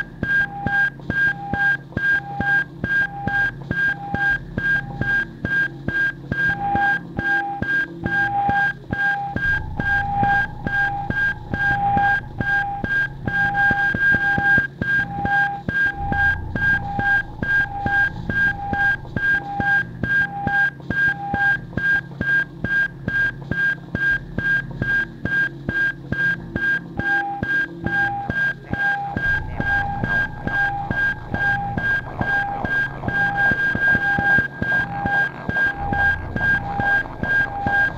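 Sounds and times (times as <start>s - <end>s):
lower electronic beep: 8.2s - 21.2s, 28.9s - 37.9s
low hum: 9.4s - 14.3s, 15.9s - 20.1s, 29.2s - 33.7s, 35.7s - 37.9s
short high electronic beeps: 9.4s - 14.6s, 15.2s - 19.8s.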